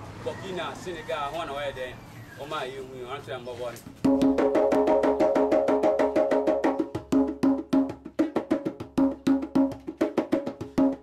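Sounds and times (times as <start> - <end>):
djembe played by hand: 3.9 - 11.0.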